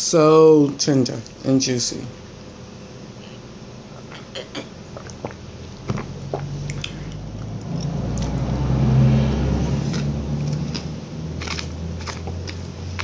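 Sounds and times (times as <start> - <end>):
low hum: 1.2 - 13.0
chewing: 4.9 - 8.4, 9.8 - 13.0.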